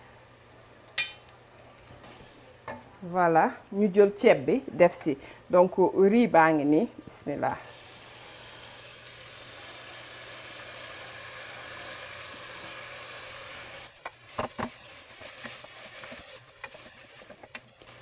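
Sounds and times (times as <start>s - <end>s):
rice sizzling in hot oil: 0.0s - 3.1s, 7.5s - 18.0s.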